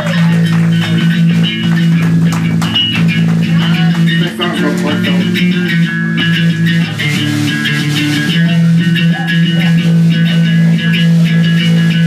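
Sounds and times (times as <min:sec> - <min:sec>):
bass guitar: 0:00.0 - 0:12.0
electric guitar: 0:00.0 - 0:12.0.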